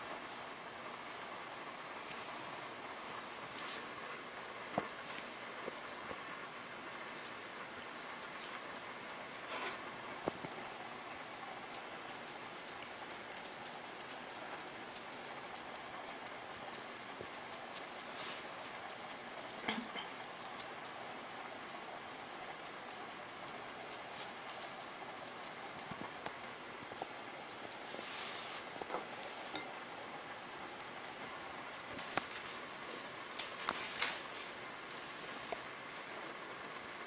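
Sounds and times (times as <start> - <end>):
steady hiss: 0.0 - 37.0
ink brush scratching on paper: 8.0 - 9.9, 10.6 - 22.8, 27.0 - 29.6, 32.0 - 34.0.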